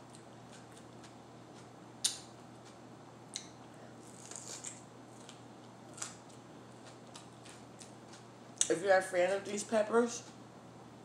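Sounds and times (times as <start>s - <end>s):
pepper crunching while chewed: 0.0s - 8.7s.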